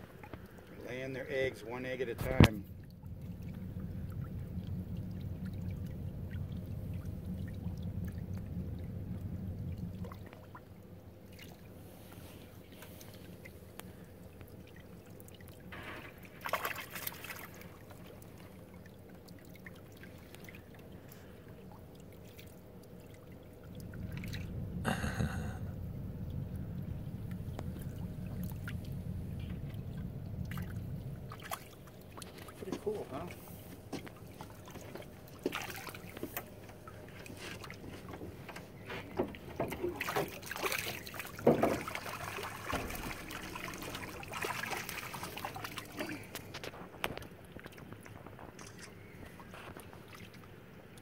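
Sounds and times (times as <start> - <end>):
low rumble: 2.2 - 16.3, 22.8 - 39.5, 41.2 - 49.7
water splashing on rocky shore: 15.1 - 18.6, 40.0 - 50.4.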